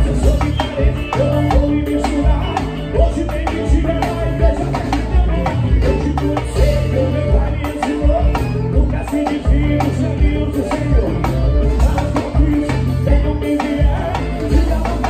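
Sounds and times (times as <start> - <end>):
live band playing: 0.0 - 15.0
steady drum beat: 0.0 - 15.0.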